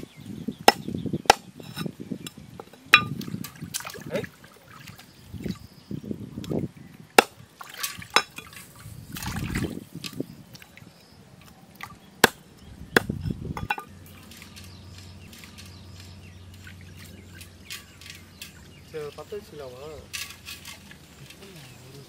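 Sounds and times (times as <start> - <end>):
sharp knocks and clinks: 0.7 - 3.7, 7.7 - 8.6, 13.0 - 21.5
water pouring and splashing: 2.6 - 5.7, 7.2 - 12.0, 13.7 - 22.0.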